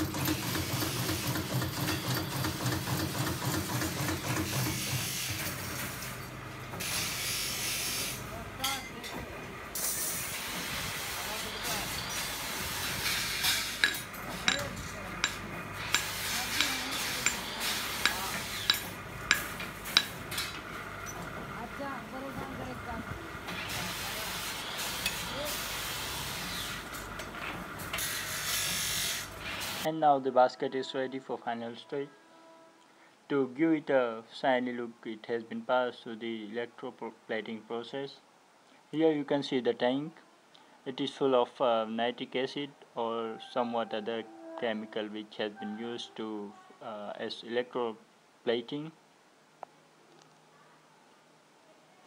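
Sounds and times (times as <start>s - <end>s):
drill press cutting metal: 0.0s - 6.1s, 9.8s - 20.6s, 23.5s - 27.0s
drill motor humming: 15.2s - 20.2s.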